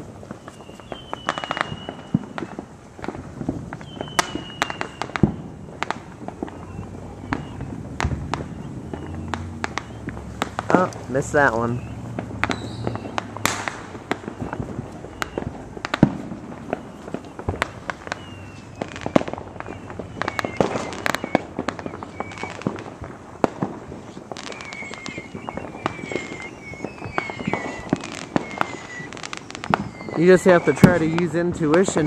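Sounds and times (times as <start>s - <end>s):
falling firework whistles: 0.0s - 32.0s
fireworks popping and banging: 0.0s - 32.0s.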